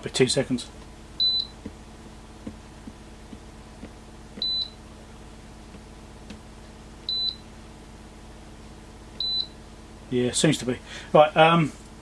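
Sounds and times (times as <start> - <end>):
steady low hum: 0.0 - 12.0
short high-pitched beeps: 1.2 - 1.6, 4.4 - 4.8, 7.1 - 7.4, 9.2 - 9.6.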